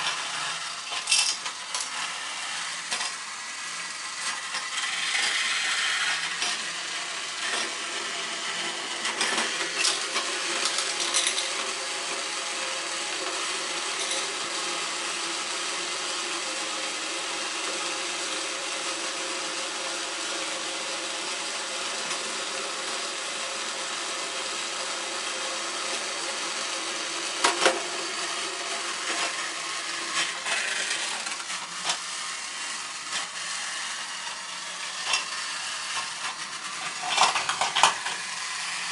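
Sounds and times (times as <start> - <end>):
wheels rattling on plastic track: 0.0 - 2.0, 2.8 - 3.2, 4.3 - 11.6, 13.9 - 14.4, 27.4 - 27.9, 29.1 - 38.9
toy train motor whirring: 0.0 - 15.6, 25.9 - 38.9.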